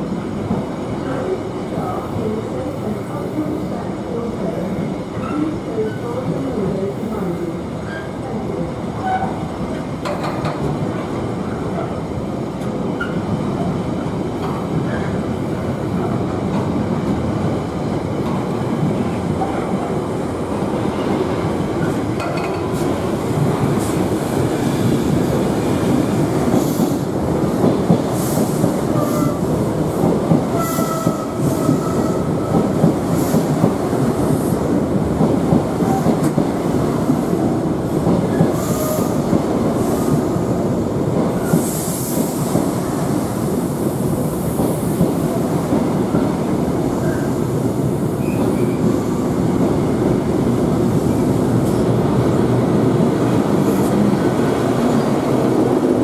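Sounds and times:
steel wheels rumbling on rails: 5.1s - 56.0s
train wheel squeal: 48.2s - 48.8s.

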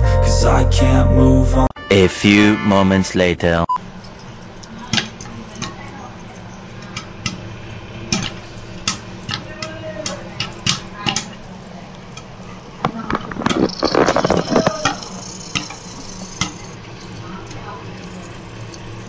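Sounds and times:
popcorn popping in a pan: 3.8s - 19.0s.

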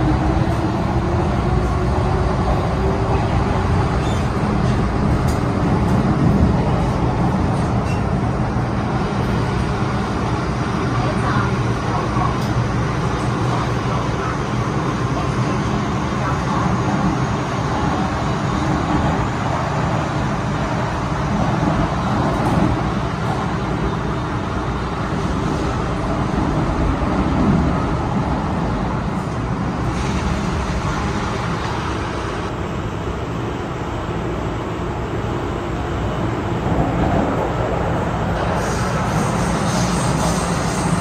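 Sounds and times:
train wheels rumbling on rail: 0.0s - 41.0s
train hiss: 38.4s - 41.0s.

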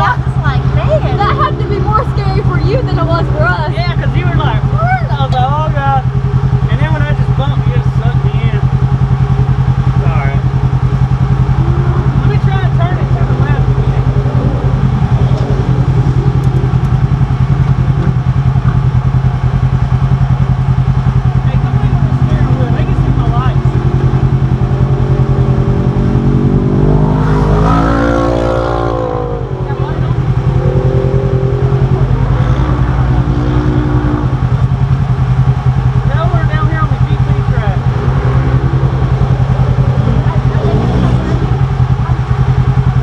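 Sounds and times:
engine idling: 0.0s - 43.0s.

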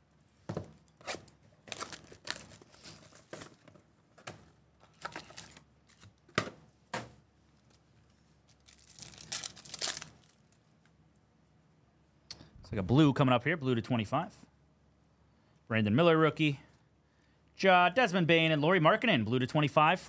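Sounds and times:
foil packs crinkling and tearing: 1.6s - 3.3s, 5.0s - 6.1s, 8.5s - 10.6s.

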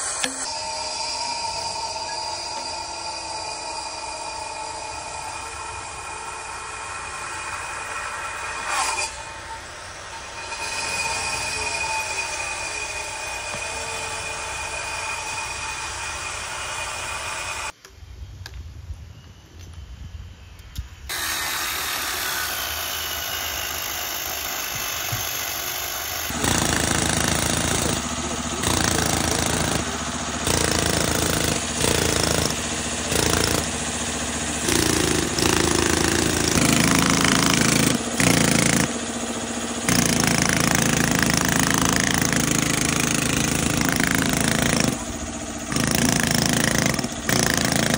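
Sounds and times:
steady machine noise: 0.0s - 8.6s, 22.6s - 47.9s
pneumatic hammer chiselling stone: 21.1s - 47.9s.

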